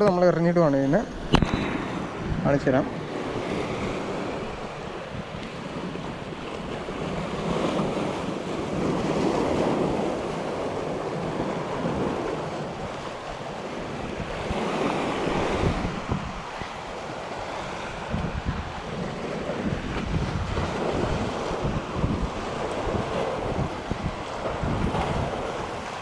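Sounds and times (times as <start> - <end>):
waves breaking on rocks: 0.0 - 26.0
wind on microphone: 0.0 - 26.0.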